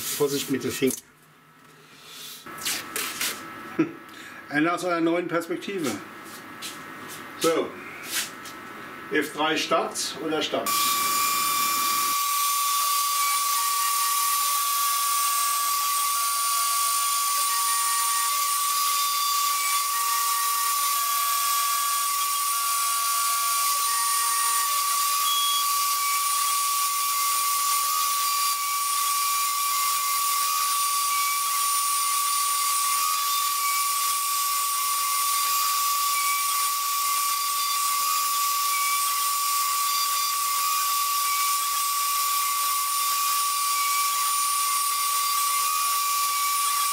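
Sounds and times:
router spindle high whine: 0:10.6 - 0:46.9
stepper motor tones: 0:10.7 - 0:13.8
hiss of cutting and dust extraction: 0:10.7 - 0:46.9.

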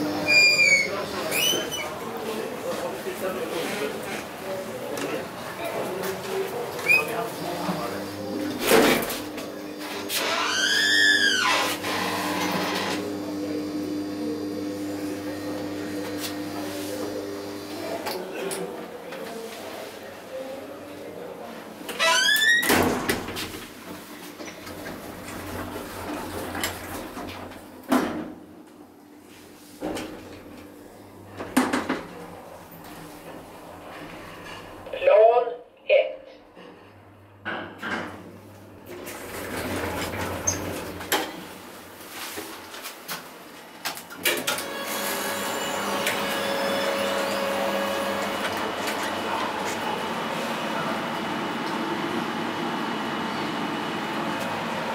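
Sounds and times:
elevator doors humming: 0:04.8 - 0:18.0, 0:24.5 - 0:27.9, 0:38.1 - 0:42.3, 0:44.1 - 0:54.9.

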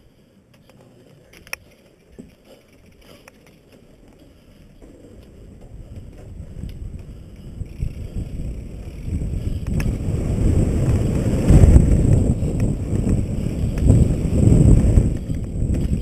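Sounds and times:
bike clattering: 0:00.6 - 0:16.0
wind buffeting microphone: 0:04.8 - 0:16.0.

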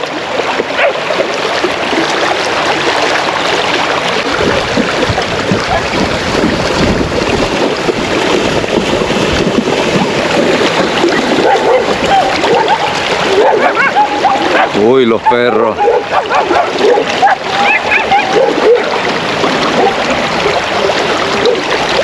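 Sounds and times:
river water rushing and splashing: 0:00.0 - 0:22.0
wind buffeting microphone: 0:03.4 - 0:22.0
deep rumble: 0:04.2 - 0:12.2.

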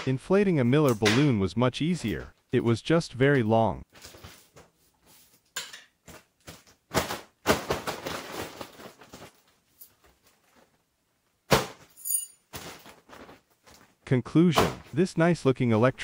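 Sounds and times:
foil balloon crinkling: 0:07.6 - 0:10.8.

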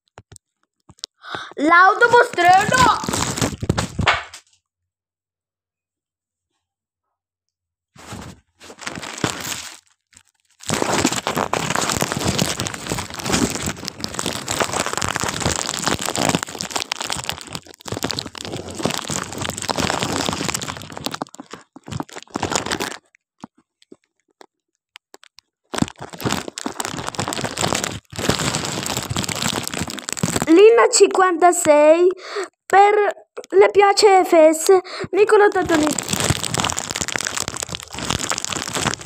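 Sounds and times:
plastic crinkling on microphone: 0:00.0 - 0:04.5, 0:08.0 - 0:39.0.

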